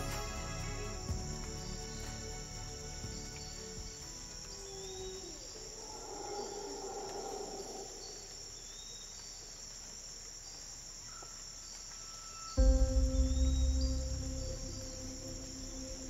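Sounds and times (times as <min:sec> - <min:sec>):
insects droning high-pitched: 0:00.0 - 0:16.0
faint short insect chirps: 0:01.1 - 0:16.0
low rushing sound: 0:12.6 - 0:16.0.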